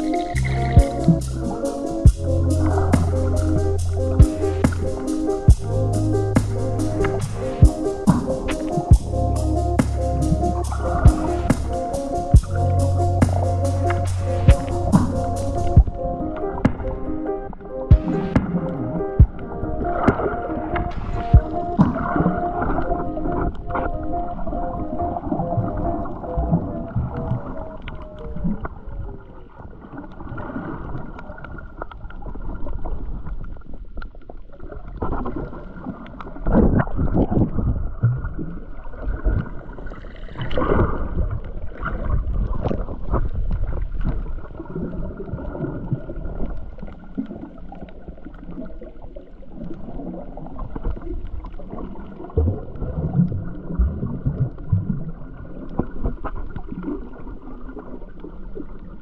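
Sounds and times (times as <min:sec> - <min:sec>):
underwater sloshing and gurgling: 0:00.0 - 0:59.0
surges of water movement: 0:34.6 - 0:59.0.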